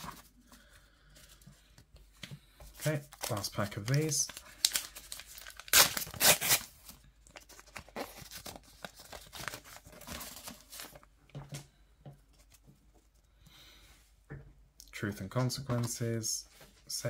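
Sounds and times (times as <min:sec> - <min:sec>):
paper wrapper tearing: 0:02.8 - 0:11.0
cards rustling and clicking: 0:07.3 - 0:11.1.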